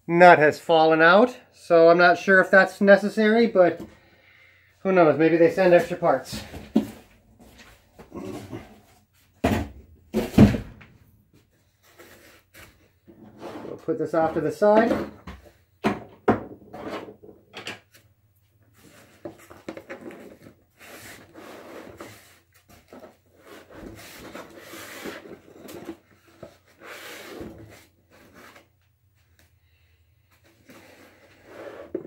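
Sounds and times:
foam blocks creaking against cardboard: 18.8 - 28.7.

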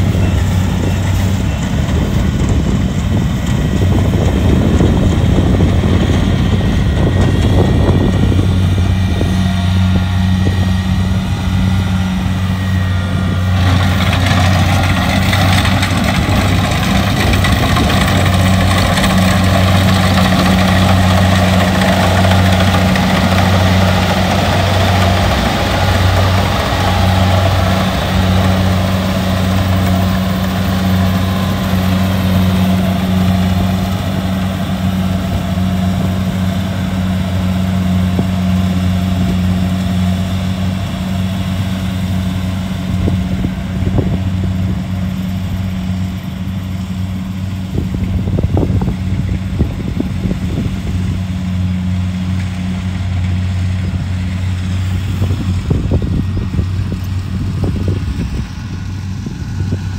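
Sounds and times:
harvester engine humming: 0.0 - 59.9.

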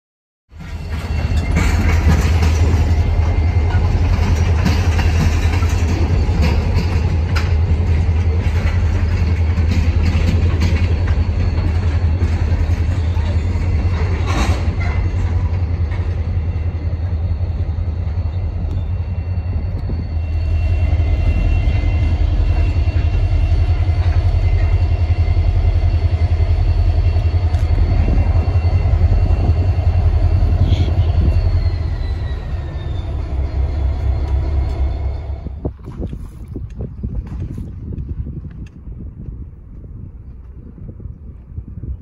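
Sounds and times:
diesel locomotive engine rumble: 0.5 - 42.0
high tone sliding down: 16.1 - 35.6.

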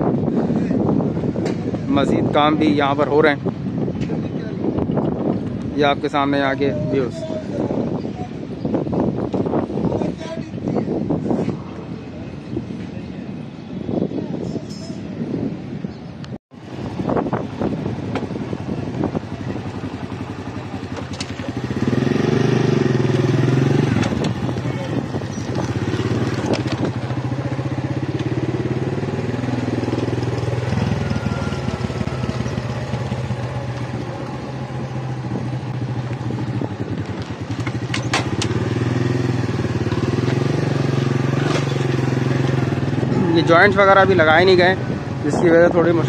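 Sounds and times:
motorcycle engine running: 16.6 - 46.0.

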